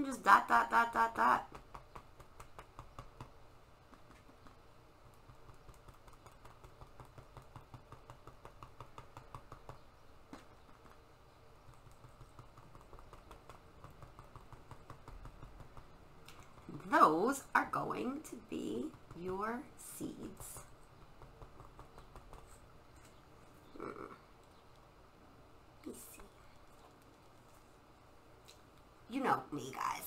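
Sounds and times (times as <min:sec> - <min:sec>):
low room hum: 0:00.0 - 0:30.0
cotton swab tapping paper: 0:01.2 - 0:17.0, 0:18.0 - 0:22.8.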